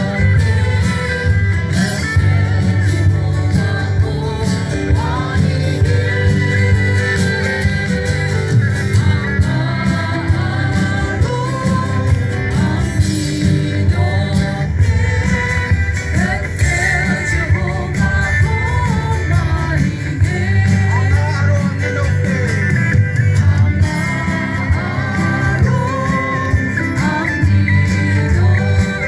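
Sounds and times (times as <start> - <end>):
person singing: 0.0 - 21.5
bass line: 0.0 - 29.0
live band playing: 0.0 - 29.0.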